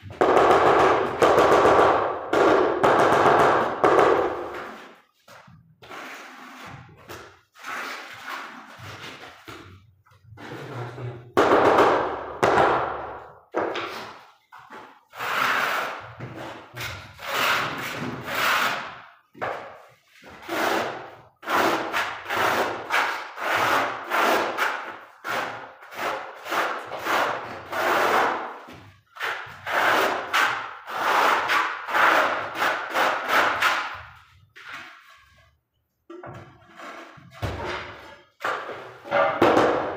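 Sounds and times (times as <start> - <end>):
trowel scraping adhesive on concrete: 4.4 - 9.4, 15.1 - 19.1, 20.2 - 35.5, 36.6 - 37.6.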